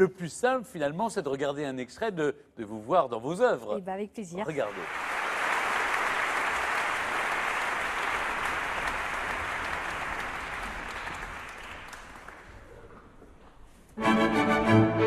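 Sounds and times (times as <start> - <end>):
audience applauding: 4.5 - 13.2.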